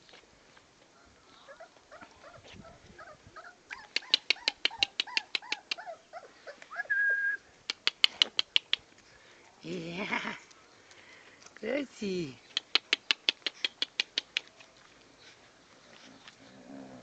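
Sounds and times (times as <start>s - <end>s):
puppies squeaking and whimpering: 1.5s - 7.0s
sharp high ticks: 3.7s - 5.9s, 7.7s - 9.0s, 12.4s - 14.6s
whistle-like tone: 6.8s - 7.4s.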